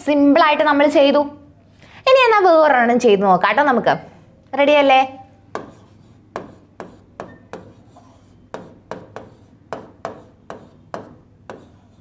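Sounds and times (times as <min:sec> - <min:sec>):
marker pen writing on board: 0:05.5 - 0:12.0.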